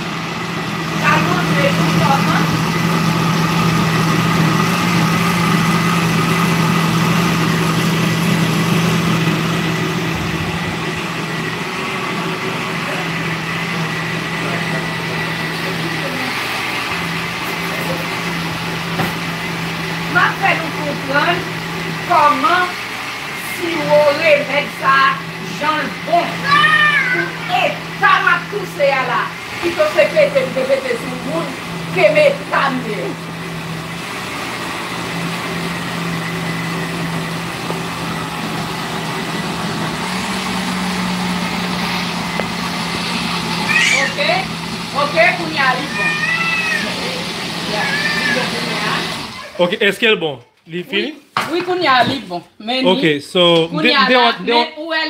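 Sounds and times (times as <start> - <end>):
blender running: 0.0 - 50.0, 53.0 - 55.0
kitchen appliance humming: 0.0 - 55.0.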